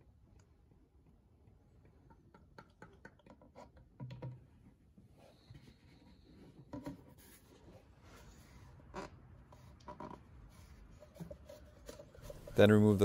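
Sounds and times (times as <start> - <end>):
plastic jug handling: 11.1 - 13.0.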